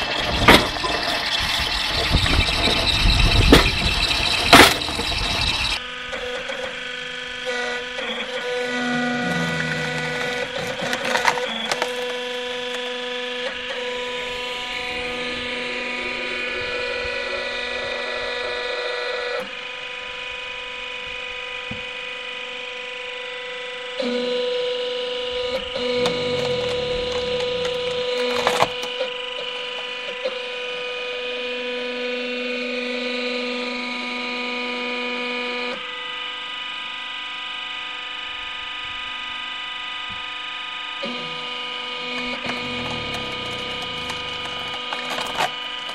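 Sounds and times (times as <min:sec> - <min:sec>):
hydraulic log splitter humming: 0:00.0 - 0:37.0, 0:38.1 - 0:45.9
wood cracking sharply: 0:03.4 - 0:05.8, 0:09.4 - 0:13.1, 0:25.8 - 0:29.0, 0:42.1 - 0:45.9.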